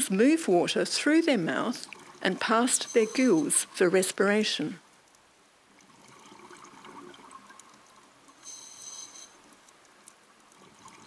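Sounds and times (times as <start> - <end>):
underwater gurgling and bubbling: 5.7 - 7.9
faint clicks: 9.2 - 11.0.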